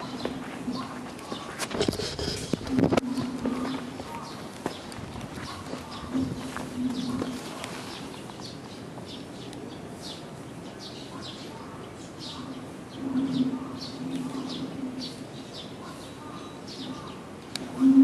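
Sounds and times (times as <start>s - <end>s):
dove cooing: 0.0s - 4.4s, 5.4s - 7.9s, 12.9s - 16.0s, 16.9s - 18.0s
small birds chirping: 0.0s - 17.9s
outdoor background noise: 0.0s - 18.0s.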